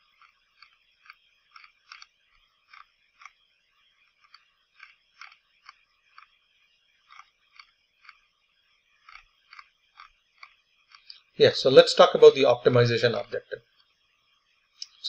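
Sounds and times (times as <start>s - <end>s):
faint irregular clicks: 0.0s - 11.4s, 13.2s - 14.1s.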